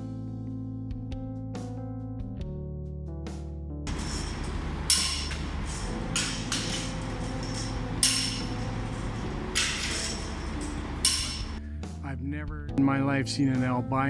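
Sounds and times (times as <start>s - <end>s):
hammer striking metal: 3.9s - 11.6s
workshop background noise: 3.9s - 11.6s.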